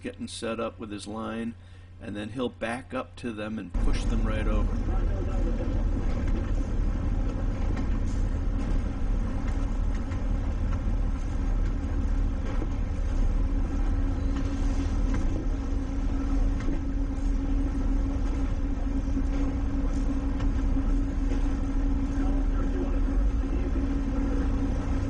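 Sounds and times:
steady engine hum: 3.4s - 25.0s
diesel engine low rumble: 3.7s - 25.0s.

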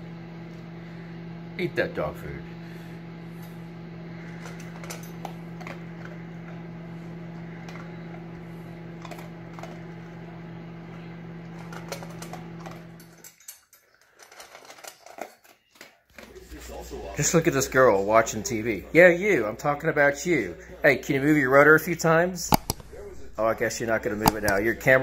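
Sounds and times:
dog crunching dry kibble: 4.2s - 13.3s, 22.4s - 25.0s
steady hum: 22.3s - 25.0s.

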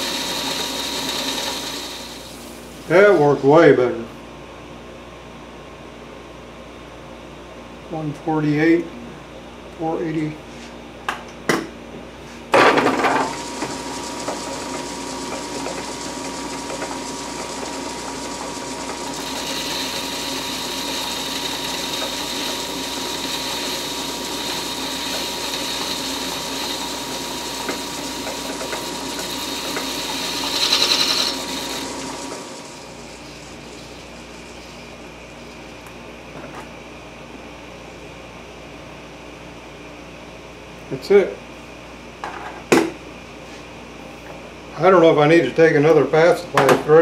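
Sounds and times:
lathe motor running: 0.0s - 2.4s, 12.6s - 36.0s
high whine of cutting: 0.0s - 3.9s, 12.6s - 36.7s
lathe starting clunk: 12.5s - 32.8s.

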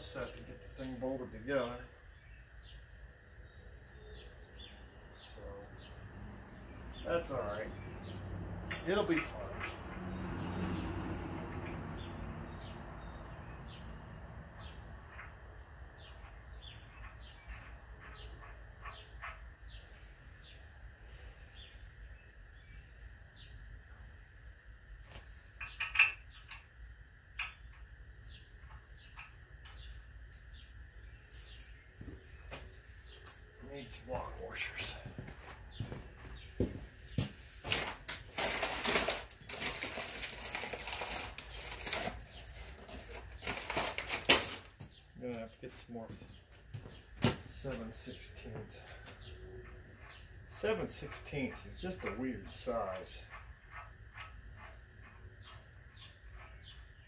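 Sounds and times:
small birds chirping: 0.0s - 37.8s, 39.0s - 57.0s
sharp clatter: 37.7s - 44.9s
small metal hardware clinking: 38.2s - 45.2s.

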